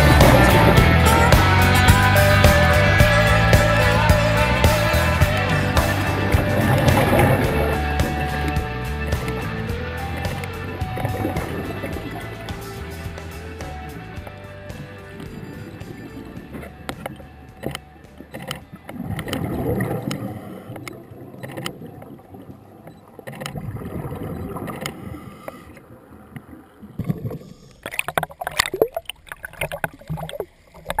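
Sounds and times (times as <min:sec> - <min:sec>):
muffled underwater rumble: 0:01.9 - 0:31.0
scattered clicks: 0:15.0 - 0:21.8.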